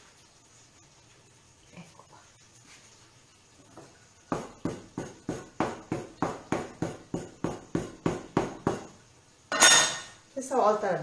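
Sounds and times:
knife chopping on wooden board: 0:04.3 - 0:08.9.

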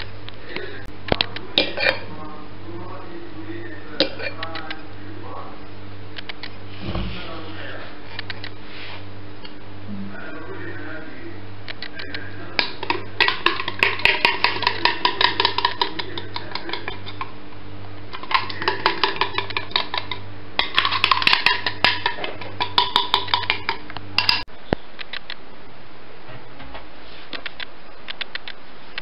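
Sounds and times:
utensil scraping a mixing bowl: 0:12.6 - 0:17.4, 0:18.2 - 0:24.5.

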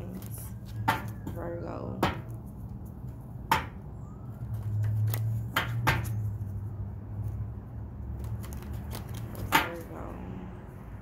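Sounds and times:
cards being shuffled: 0:00.0 - 0:01.4, 0:04.4 - 0:06.6, 0:08.1 - 0:10.0.

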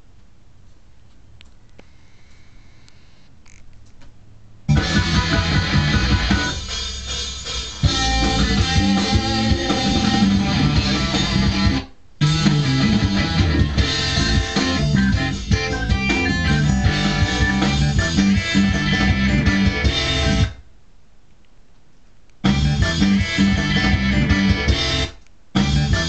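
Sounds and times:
rock music with electric guitar: 0:04.7 - 0:20.6, 0:22.5 - 0:26.0.

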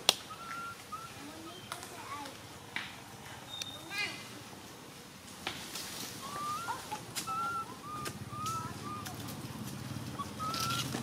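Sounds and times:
thin whistled animal calls: 0:00.2 - 0:01.4, 0:06.2 - 0:09.2, 0:10.1 - 0:11.0.

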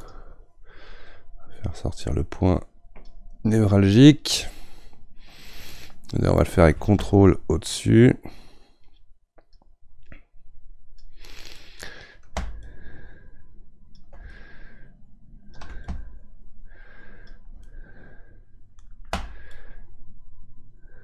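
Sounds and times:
soft breaths: 0:00.0 - 0:01.9, 0:04.3 - 0:06.4, 0:08.2 - 0:09.1, 0:11.0 - 0:21.0.

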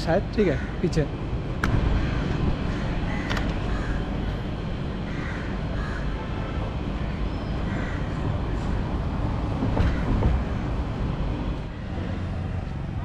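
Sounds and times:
road traffic rumble: 0:00.0 - 0:13.0
sharp knocks and rattles: 0:09.5 - 0:10.7.

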